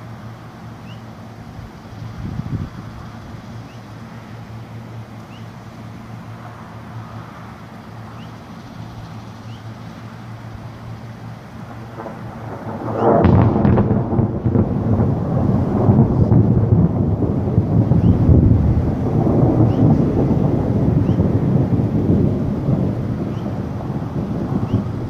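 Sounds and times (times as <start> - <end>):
thunder crack and rumble: 2.0 - 3.4, 11.3 - 25.0.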